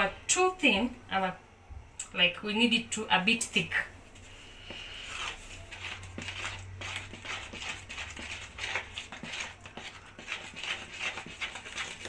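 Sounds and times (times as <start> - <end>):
spoon stirring thick batter: 4.0 - 12.0.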